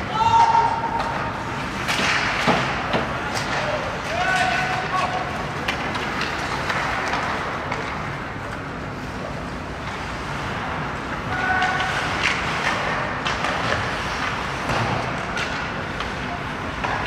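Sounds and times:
skates scraping ice: 0.1 - 17.0
hockey sticks and puck clicking: 0.2 - 17.0.

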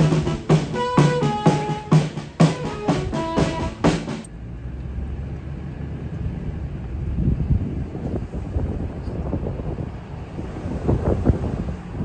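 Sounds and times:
music with steady drum beat: 0.0 - 4.3.

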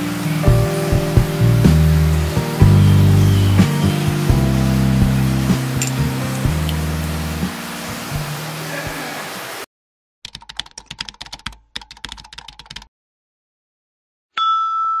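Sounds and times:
background music track: 0.0 - 9.0.

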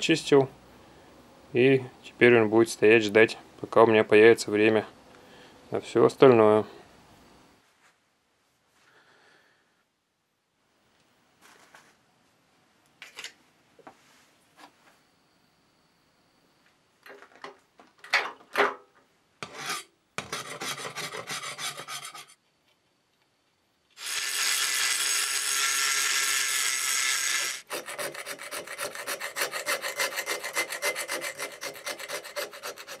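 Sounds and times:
scraping and scrubbing strokes: 19.4 - 22.4, 27.4 - 33.0.

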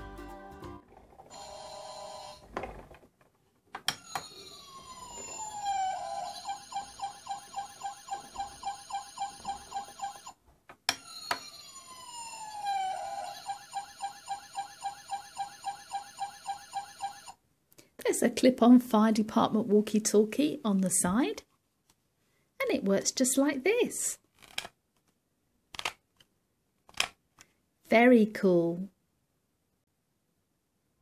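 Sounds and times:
toy fire engine siren: 1.3 - 2.4, 4.0 - 10.4, 11.0 - 17.4.

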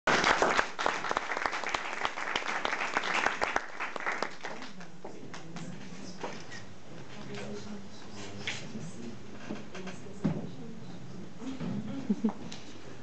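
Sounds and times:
audience applauding: 0.1 - 4.9
faint murmur of voices: 4.7 - 13.0.

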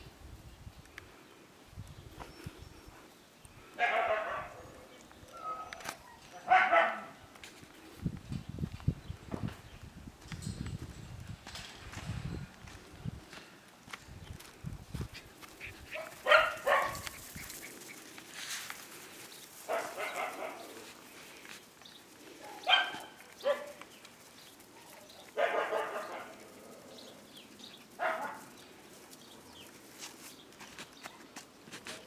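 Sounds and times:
puppies barking: 3.8 - 7.2, 15.6 - 18.2, 19.5 - 21.0, 22.3 - 28.6.

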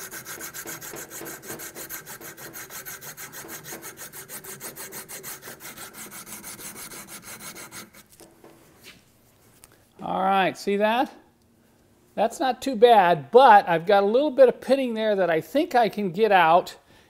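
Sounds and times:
abrasive cloth rasping on metal: 0.0 - 8.2.

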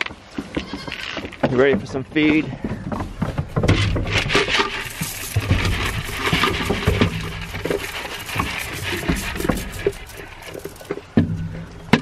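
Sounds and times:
feed pellets pattering on wood: 3.6 - 11.1.

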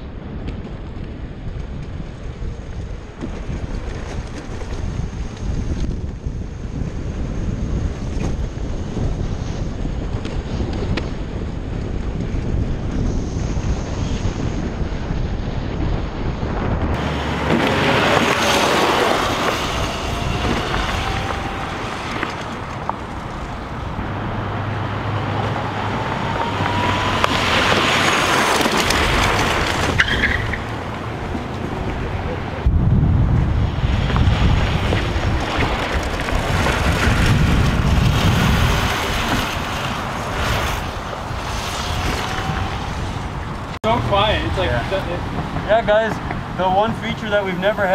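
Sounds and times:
wind on microphone: 0.0 - 47.9
tyre noise: 16.6 - 47.9
electric motor whine: 17.0 - 23.8.

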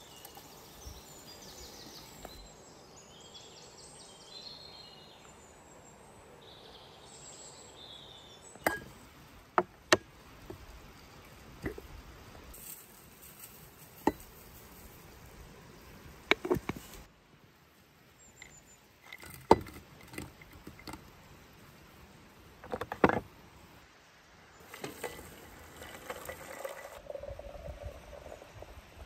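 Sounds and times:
glass teapot and cup clicks: 8.6 - 8.9
water pouring into teapot: 24.7 - 27.8.

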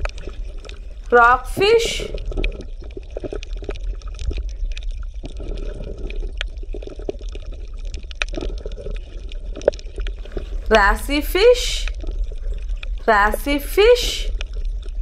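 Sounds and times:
low steady hum: 0.0 - 2.7, 10.2 - 14.8
water bubbling and gurgling: 0.0 - 15.0
small ticks: 2.1 - 10.6.

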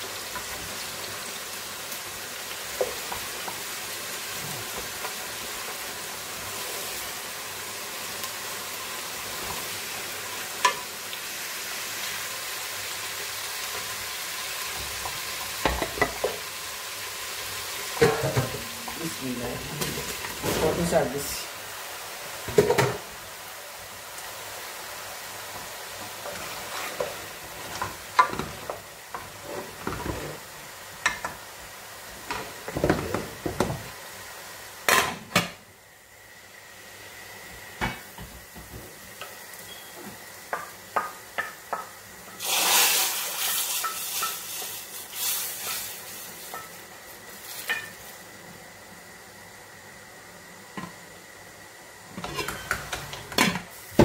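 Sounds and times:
sizzling: 0.0 - 54.0
wooden spoons scraping in pots: 26.2 - 30.4, 52.2 - 53.2
pots and metal lid clinking: 52.2 - 53.6.

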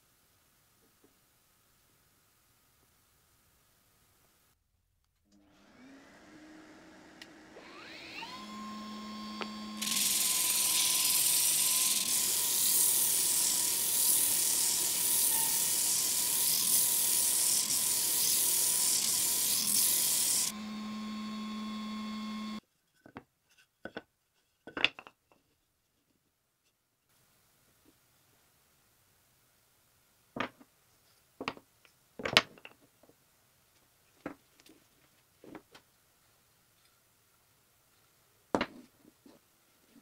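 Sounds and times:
power tool motor whine: 5.3 - 22.6
loud hiss: 9.8 - 20.5.

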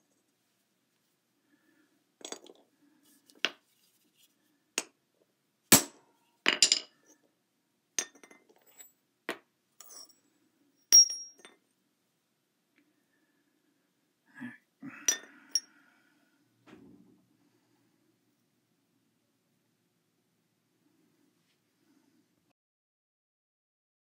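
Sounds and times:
metal parts clinking on hard floor: 2.2 - 2.6, 5.7 - 7.0, 8.0 - 9.0, 9.8 - 10.2, 10.8 - 11.6, 15.1 - 15.7.

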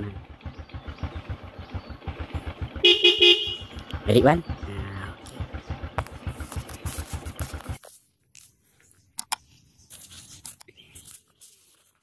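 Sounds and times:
motorcycle engine idling: 0.0 - 7.9.

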